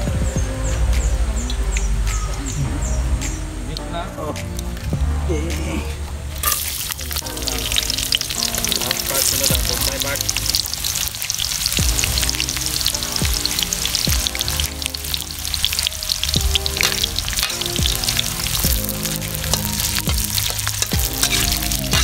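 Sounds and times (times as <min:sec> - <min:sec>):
background music with steady beat: 0:00.0 - 0:22.0
food sizzling in hot oil: 0:06.4 - 0:22.0.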